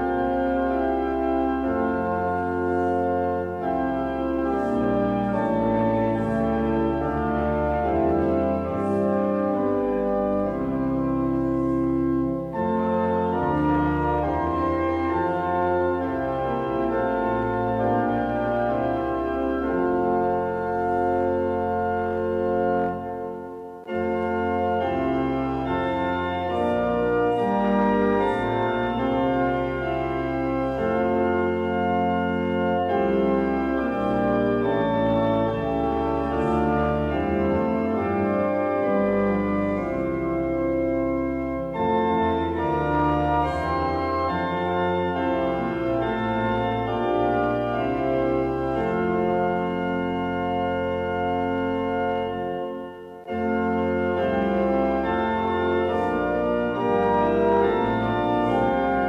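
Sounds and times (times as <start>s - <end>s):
organ playing held chords: 0.0s - 59.0s.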